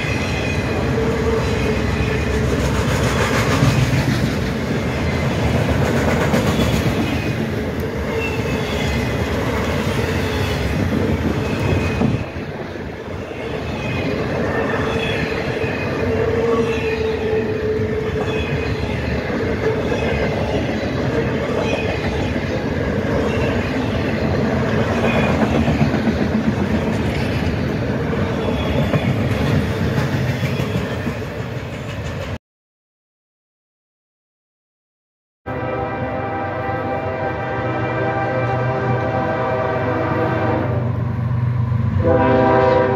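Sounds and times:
train wheels rumbling on rails: 0.0 - 32.4.

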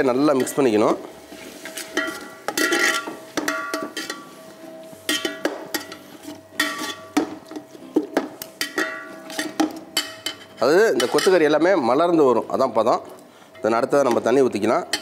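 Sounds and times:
metal ladle scraping metal pot: 0.3 - 4.3, 5.0 - 7.2.

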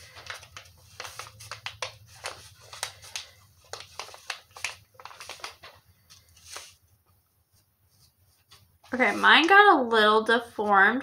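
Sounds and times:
packaging wrapper crinkling: 0.0 - 6.8.

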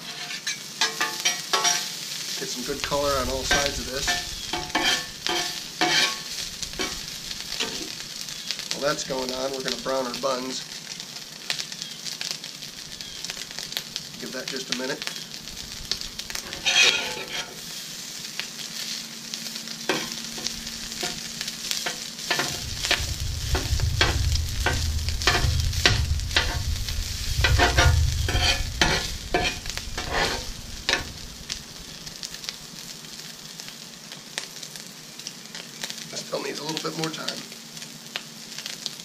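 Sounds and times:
metal spatula scraping griddle: 0.0 - 2.0, 2.6 - 8.0, 15.5 - 17.8, 19.9 - 32.4
sausage sizzling on griddle: 0.0 - 39.0
low rumble: 2.6 - 8.3, 15.4 - 17.3, 20.1 - 33.1.

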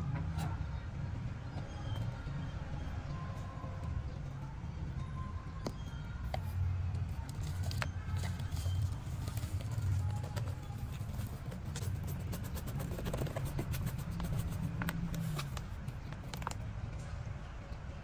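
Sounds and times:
plastic and soil clicks and crackles: 12.8 - 17.1.

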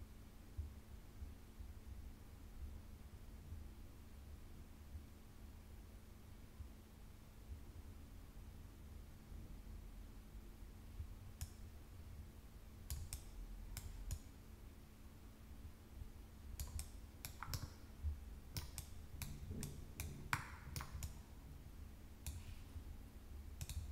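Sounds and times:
faint low hum: 0.0 - 23.9
mouse buttons clicking: 12.9 - 14.3, 16.6 - 17.9, 18.5 - 21.2, 22.2 - 22.6, 23.6 - 23.9.

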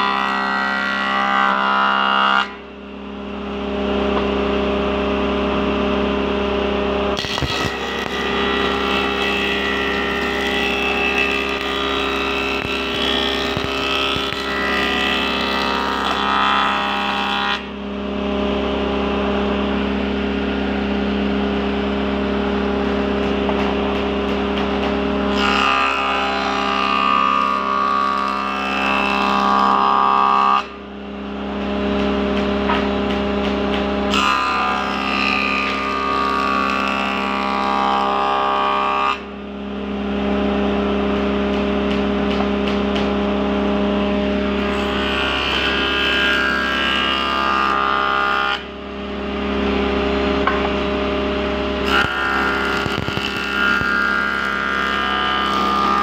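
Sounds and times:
wood jointer running: 0.0 - 2.6, 4.1 - 30.8, 31.4 - 39.3, 39.9 - 56.0
cutter head planing a board: 0.0 - 56.0
motor hum: 2.6 - 28.2, 48.6 - 56.0.

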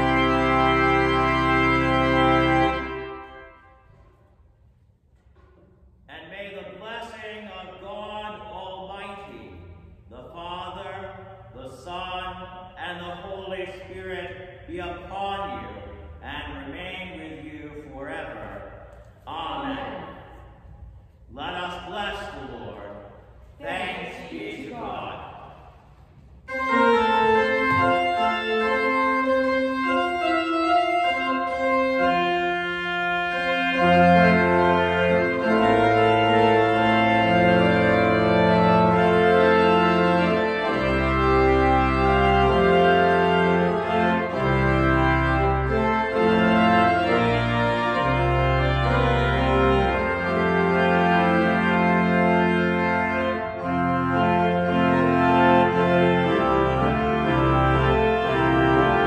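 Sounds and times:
deep organ pedal bass notes: 0.0 - 3.9, 21.3 - 59.0
church organ chords: 0.0 - 4.8, 5.4 - 59.0.

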